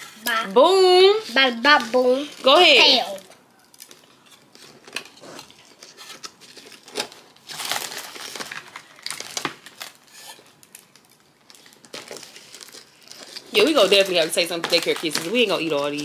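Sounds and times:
plastic wrapper crinkling: 0:01.2 - 0:16.0.

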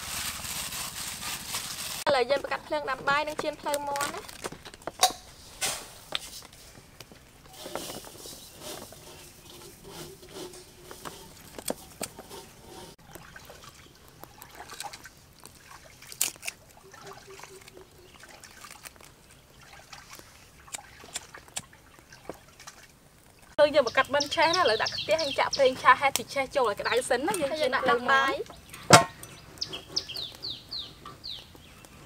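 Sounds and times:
small wood fire crackling: 0:00.0 - 0:32.0.

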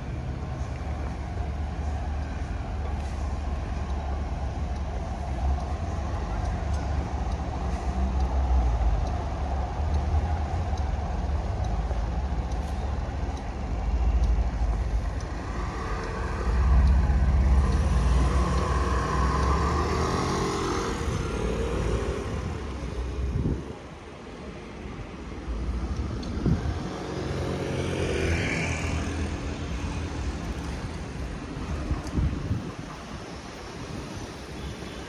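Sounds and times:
traffic rumble: 0:00.0 - 0:35.0
vehicle passing with whine: 0:13.8 - 0:23.7, 0:25.4 - 0:31.2.

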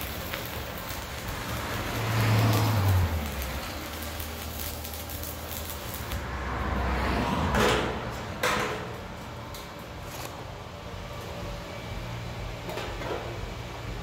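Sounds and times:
welding arc crackling: 0:00.0 - 0:06.3.

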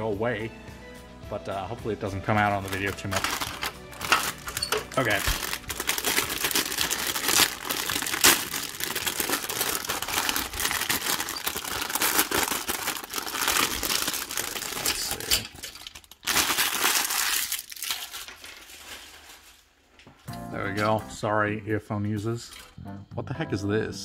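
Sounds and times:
plastic bag crinkling: 0:02.4 - 0:19.9.

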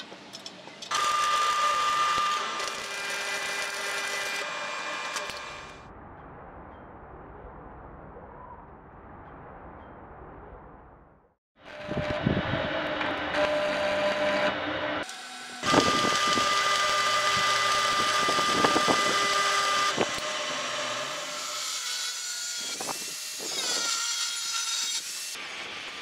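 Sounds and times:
angle grinder grinding: 0:00.9 - 0:05.8, 0:11.6 - 0:25.1
welding arc crackling: 0:00.9 - 0:05.8.

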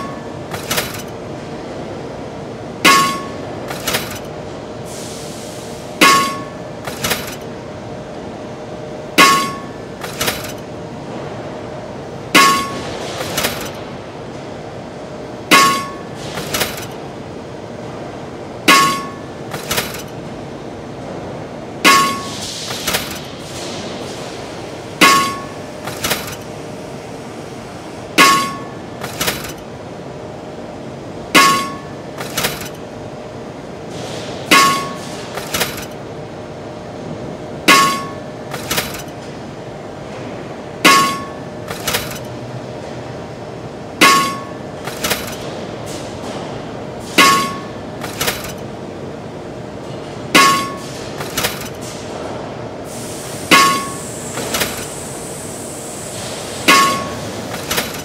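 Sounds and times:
hammer clanging on metal: 0:00.0 - 0:01.2, 0:02.8 - 0:04.3, 0:06.0 - 0:07.4, 0:09.2 - 0:10.6, 0:12.4 - 0:13.8, 0:15.5 - 0:17.0, 0:18.7 - 0:20.2, 0:21.8 - 0:23.3, 0:25.0 - 0:26.5, 0:28.2 - 0:29.6, 0:31.4 - 0:32.8, 0:34.5 - 0:36.0, 0:37.7 - 0:39.1, 0:40.8 - 0:42.3, 0:44.0 - 0:45.5, 0:47.1 - 0:48.6, 0:50.4 - 0:51.8, 0:53.5 - 0:54.9, 0:56.7 - 0:58.0
machine hum: 0:00.0 - 0:58.0.

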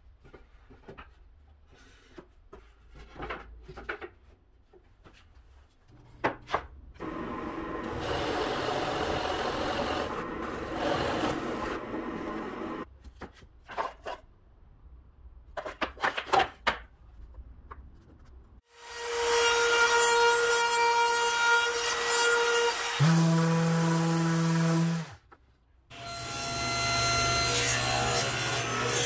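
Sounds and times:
drill press boring into wood: 0:07.0 - 0:12.8.

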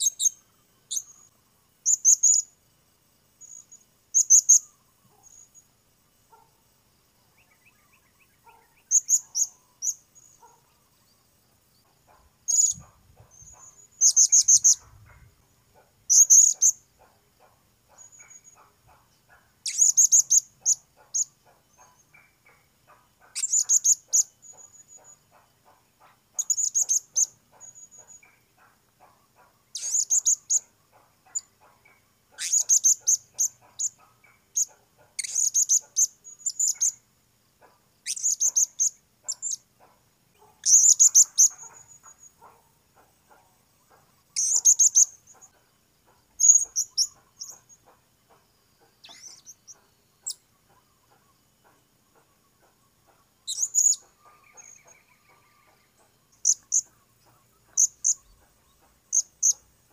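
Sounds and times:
parrot shrill calls: 0:32.4 - 0:33.0.

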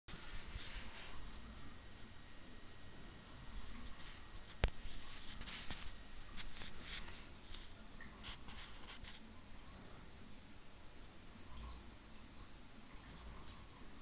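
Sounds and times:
fish feeder scratchy rattles: 0:03.7 - 0:09.3.

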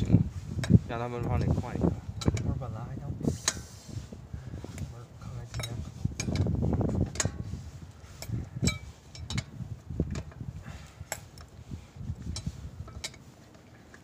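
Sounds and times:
lug wrench clinking on wheel nuts: 0:05.4 - 0:07.5, 0:08.1 - 0:11.5, 0:12.3 - 0:13.3.

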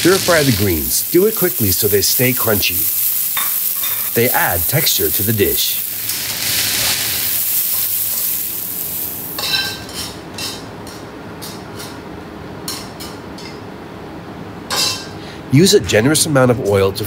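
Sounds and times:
vegetables sizzling in a wok: 0:00.0 - 0:10.7
chopsticks clinking and scraping: 0:03.3 - 0:04.2.

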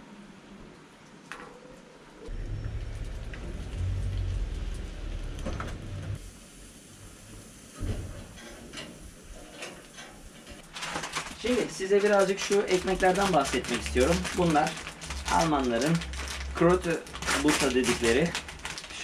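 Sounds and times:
loud low rumble: 0:02.3 - 0:06.2
steady rain: 0:02.3 - 0:08.9, 0:10.7 - 0:19.0.

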